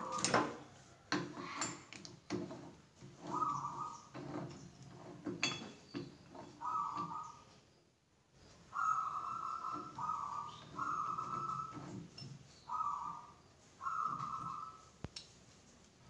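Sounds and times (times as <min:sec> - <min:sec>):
chuck key squealing and grinding: 0:03.0 - 0:07.3, 0:09.3 - 0:12.5.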